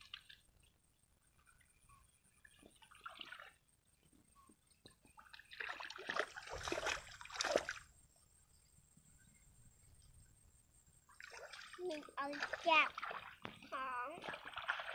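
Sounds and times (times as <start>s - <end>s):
hands splashing in muddy water: 5.2s - 7.9s, 11.2s - 14.9s.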